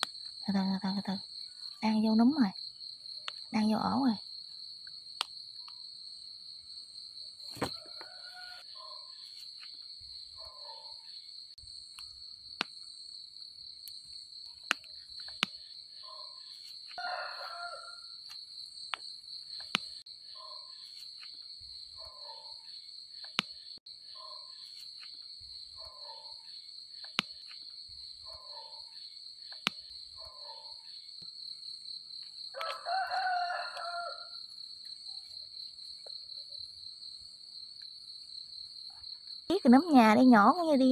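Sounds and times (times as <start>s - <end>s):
high-pitched insect trill: 0.0s - 40.9s
rooster crowing: 7.6s - 8.8s, 17.0s - 18.2s, 32.5s - 34.4s.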